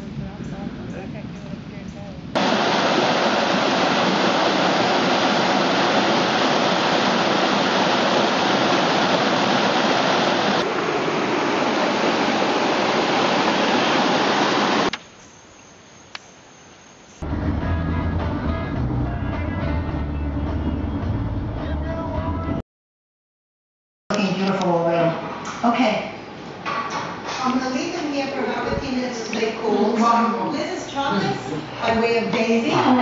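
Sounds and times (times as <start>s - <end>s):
water rushing over rocks: 2.4s - 15.0s.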